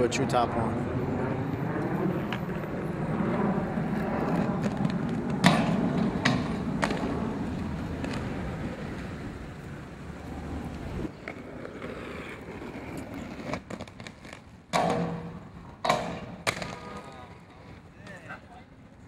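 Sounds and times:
skate wheels rolling on asphalt: 0.0s - 19.0s
skates knocking metal barrier: 5.4s - 7.1s, 14.7s - 17.0s.

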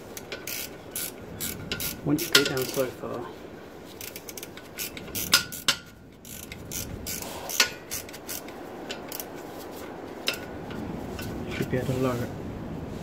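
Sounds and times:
ratchet clicking: 0.1s - 2.9s, 3.9s - 9.4s.

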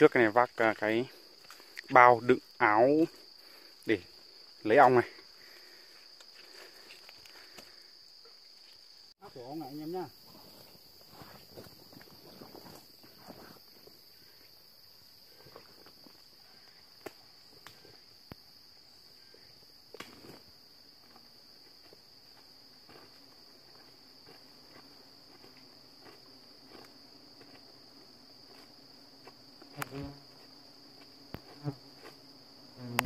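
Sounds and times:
insects chirring: 0.0s - 33.0s
footsteps on twigs and leaves: 0.5s - 1.9s, 5.2s - 7.9s, 10.2s - 14.0s, 19.9s - 32.5s
low wasp buzz: 22.1s - 33.0s.

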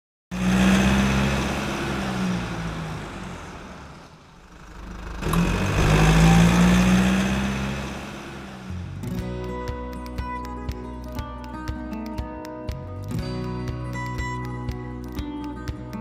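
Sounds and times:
car engine running: 0.3s - 9.4s.

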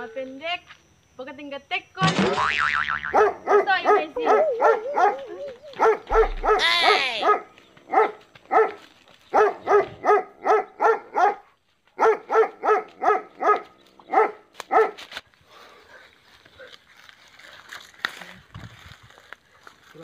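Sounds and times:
dog barking: 3.1s - 15.0s
dog yelping cries: 3.1s - 15.0s.

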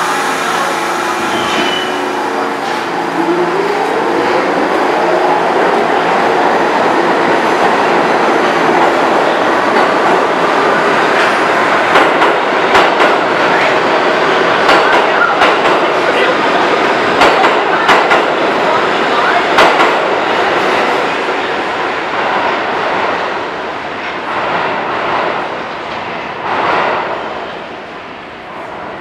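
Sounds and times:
train wheels rumbling on rail: 0.0s - 29.0s
wheels clacking over rail joints: 14.6s - 16.3s.

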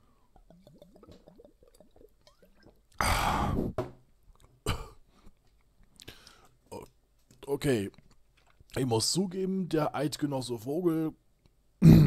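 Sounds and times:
faint mouth sounds: 0.0s - 4.5s
breathy bursts into microphone: 3.0s - 3.8s.

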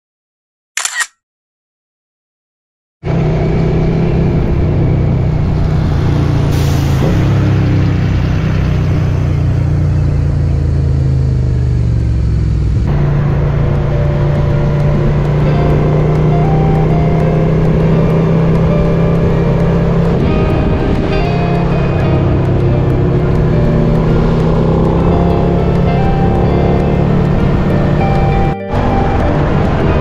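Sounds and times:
motorcycle engine running: 3.1s - 30.0s
wind noise: 17.8s - 30.0s.

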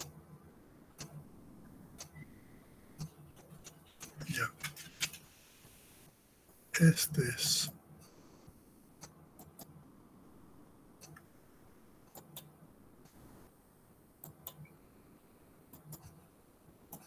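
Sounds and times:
computer mouse clicks: 0.9s - 1.2s, 1.9s - 2.3s, 9.0s - 9.8s, 11.0s - 11.3s, 12.0s - 12.6s, 14.2s - 14.8s, 15.7s - 16.2s.

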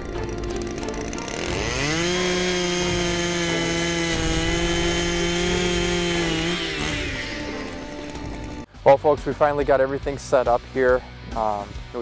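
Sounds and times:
ice auger engine revving: 0.0s - 8.7s.

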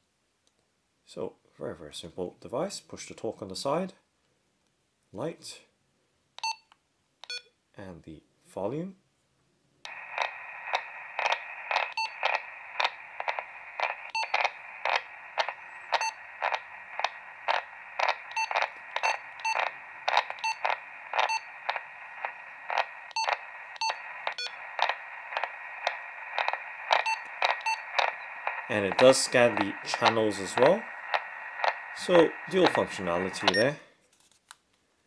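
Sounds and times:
walkie-talkie static hiss: 9.9s - 33.8s.

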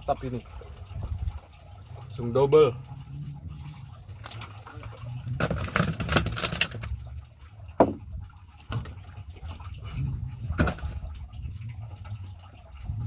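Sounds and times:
water splashing and dripping: 0.0s - 13.0s
sharp knock on wooden boat: 7.8s - 8.0s
steady low rumble: 9.5s - 13.0s.

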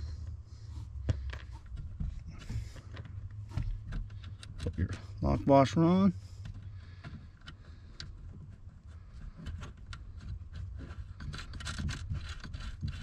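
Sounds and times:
low steady hum: 0.0s - 13.0s
small metal clicks and scrapes: 1.2s - 13.0s.

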